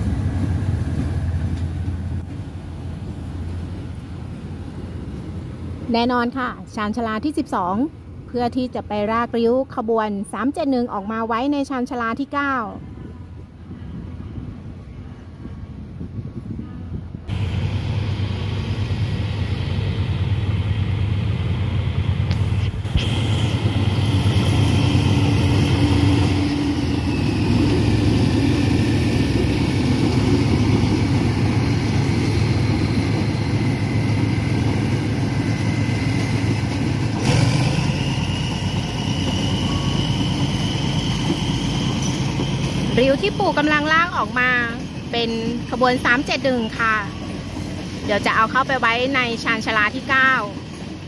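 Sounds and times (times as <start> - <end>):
diesel locomotive engine running: 15.7 - 51.0.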